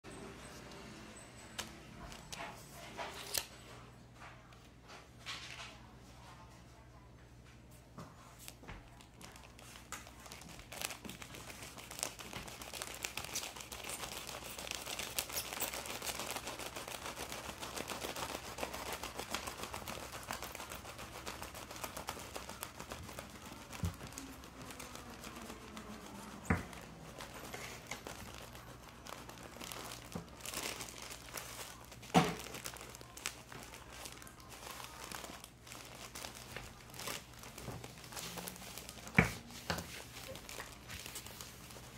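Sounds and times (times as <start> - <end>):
knife sawing through plastic wrap: 10.3 - 39.1.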